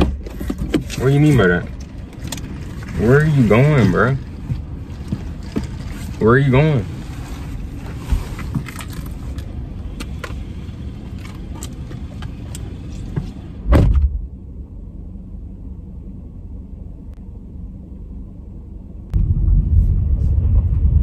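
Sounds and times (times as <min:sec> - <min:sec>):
steady low rumble: 0:00.0 - 0:21.0
small clicks and rustles: 0:07.2 - 0:10.4
car door slamming: 0:13.6 - 0:14.3.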